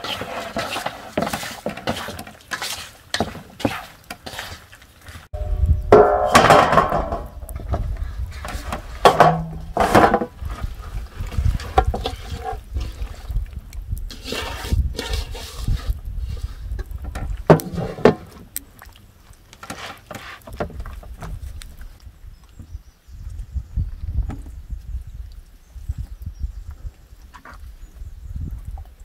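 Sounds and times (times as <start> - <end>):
mixture scraped into metal pan: 0.0 - 4.8, 14.1 - 16.7
hands mixing wet food in metal bowl: 0.0 - 22.0
short ringing tone: 5.4 - 6.3
low rumble: 5.4 - 8.4.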